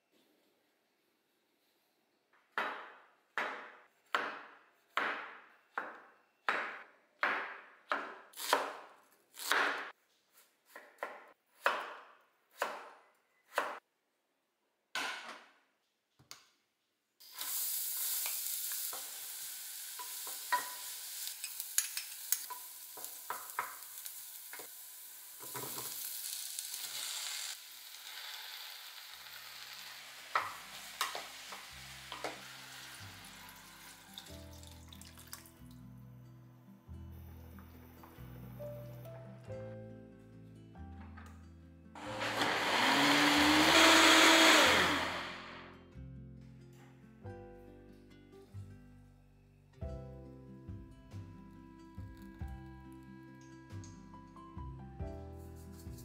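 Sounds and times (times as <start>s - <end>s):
knife chopping on cutting board: 2.6s - 13.8s
onion sizzling in butter: 17.2s - 34.6s.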